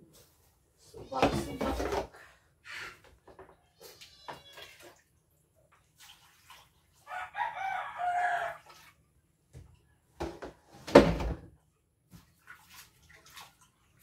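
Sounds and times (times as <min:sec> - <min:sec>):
faint knocks and clatters: 0:03.0 - 0:04.5
rooster crowing: 0:07.1 - 0:08.7.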